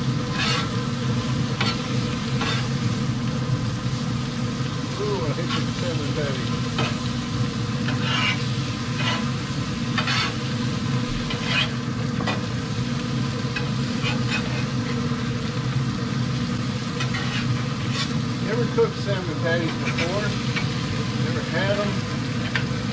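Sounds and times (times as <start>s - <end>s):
food sizzling on grill: 0.0s - 22.9s
metal spatula scraping grate: 0.3s - 0.8s, 7.9s - 9.3s, 10.0s - 10.4s, 11.3s - 11.8s, 14.0s - 14.7s, 17.0s - 18.2s.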